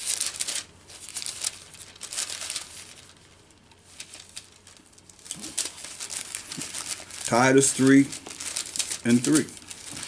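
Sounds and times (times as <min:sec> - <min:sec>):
thin pages rustling: 0:00.0 - 0:10.0.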